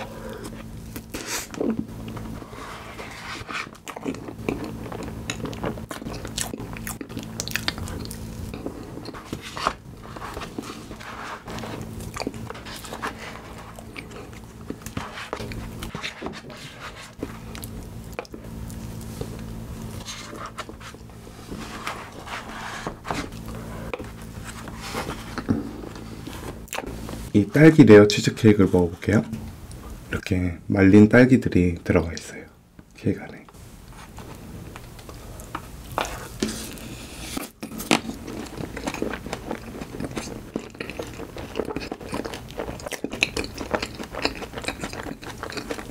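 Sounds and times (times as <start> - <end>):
steady low hum: 0.0 - 45.9
lip smacks and chewing: 3.8 - 9.2, 38.5 - 45.9.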